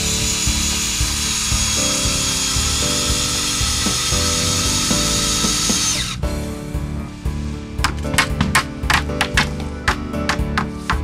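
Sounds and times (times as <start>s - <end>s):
drill driving screw into wood: 0.0s - 6.2s
background music: 0.0s - 11.0s.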